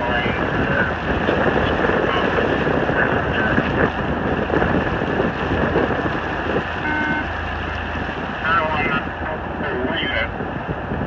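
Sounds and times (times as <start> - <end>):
gusty wind buffeting microphone: 0.0 - 11.0
brief steady tone: 6.8 - 7.3.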